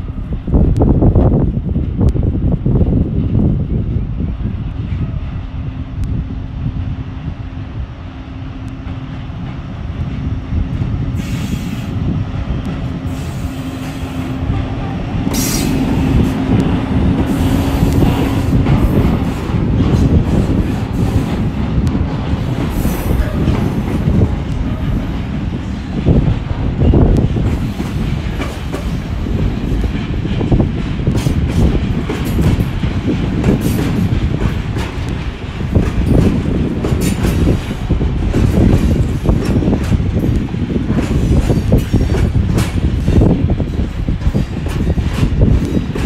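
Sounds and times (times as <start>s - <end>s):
locomotive hum: 0.0s - 46.0s
train wheels rumbling on rails: 0.0s - 46.0s.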